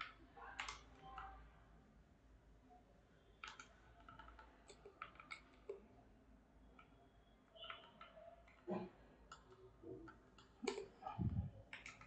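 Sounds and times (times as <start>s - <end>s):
computer keyboard clicks: 0.0s - 1.4s, 3.4s - 5.8s, 6.7s - 12.0s
mouse clicks: 9.3s - 12.0s.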